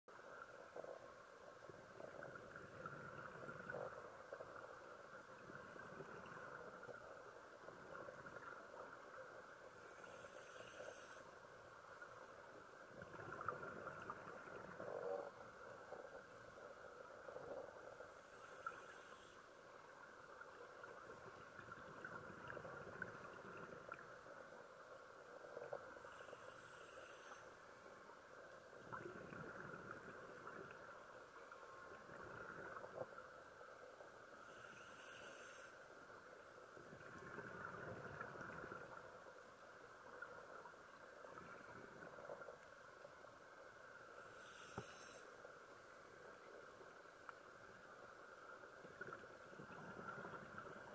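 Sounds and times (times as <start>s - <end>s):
exhaled bubbles hissing: 1.6s - 11.3s, 12.0s - 16.4s, 20.7s - 24.2s, 28.7s - 33.2s, 34.4s - 35.8s, 36.8s - 39.1s, 44.0s - 45.4s, 48.7s - 50.9s.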